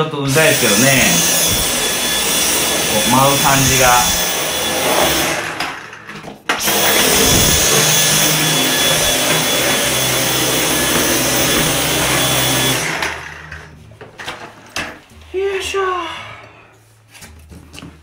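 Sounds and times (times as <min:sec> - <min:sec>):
cordless vacuum whining: 0:00.0 - 0:14.4.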